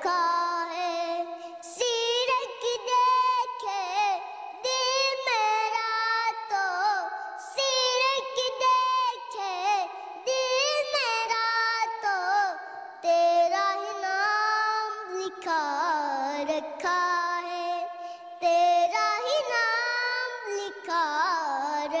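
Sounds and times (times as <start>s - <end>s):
boy singing: 0.0s - 22.0s
breaths: 1.2s - 1.7s, 4.2s - 4.6s, 7.1s - 7.5s, 9.9s - 10.3s, 12.6s - 13.0s, 17.9s - 18.4s.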